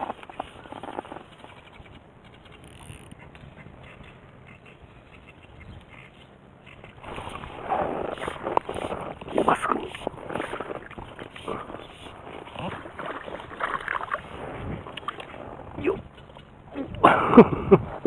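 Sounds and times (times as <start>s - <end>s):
fish splashing in water: 7.0s - 15.5s.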